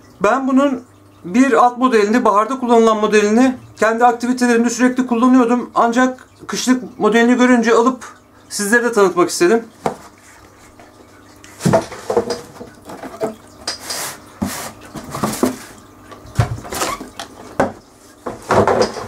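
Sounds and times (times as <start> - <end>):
boots knocking on a tabletop: 9.8 - 10.1.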